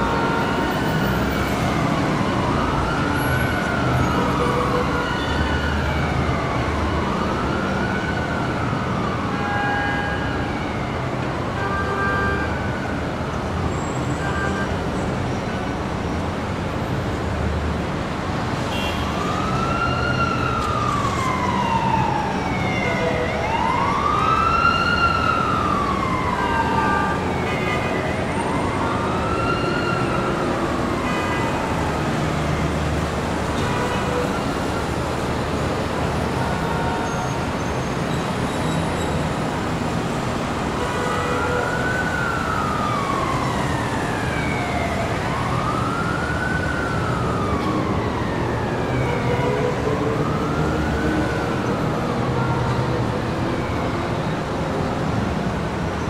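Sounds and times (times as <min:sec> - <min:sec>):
emergency siren wailing: 0:00.0 - 0:17.1, 0:17.7 - 0:56.0
city traffic noise: 0:00.0 - 0:56.0.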